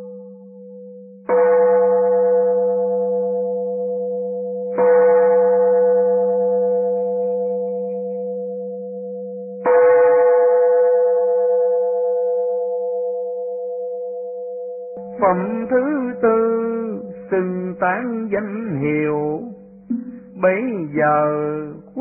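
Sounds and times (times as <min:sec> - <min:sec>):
temple bell ringing: 0:00.0 - 0:22.0
steady low hum: 0:15.0 - 0:22.0.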